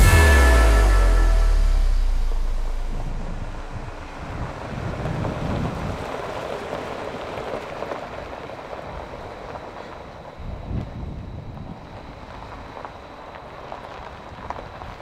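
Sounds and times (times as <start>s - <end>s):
uneven rushing noise: 0.0s - 5.8s
vehicle engine running: 0.0s - 6.1s.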